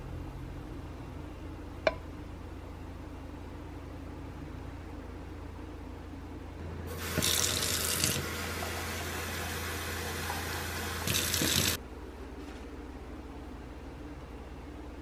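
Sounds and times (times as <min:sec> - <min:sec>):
tap water running into metal jug: 0:07.0 - 0:11.8.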